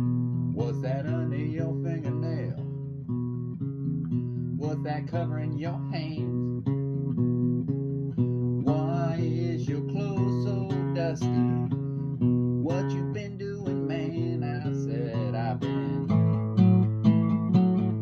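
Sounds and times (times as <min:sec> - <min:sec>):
strummed acoustic guitar: 0:00.0 - 0:18.0
man singing: 0:00.6 - 0:02.8, 0:04.6 - 0:06.5, 0:08.6 - 0:16.4.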